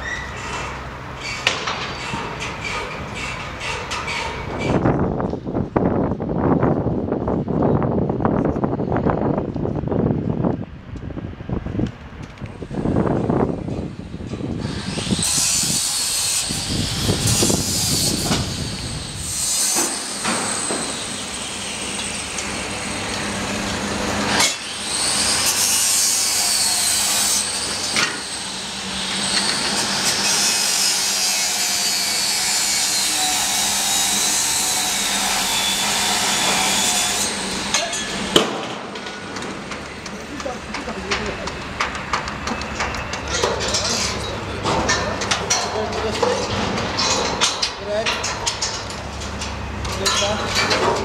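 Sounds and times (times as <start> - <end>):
power tool whine: 14.5 - 38.3.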